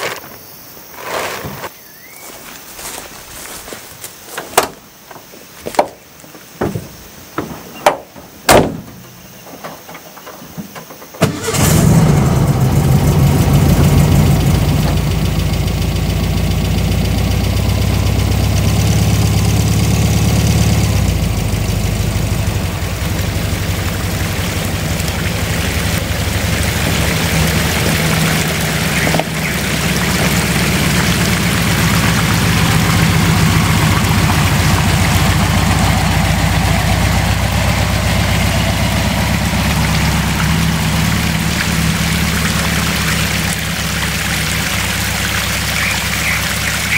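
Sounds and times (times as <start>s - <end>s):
sharp knocks and clicks: 6.6s - 11.2s
van engine starting and idling: 11.2s - 46.9s.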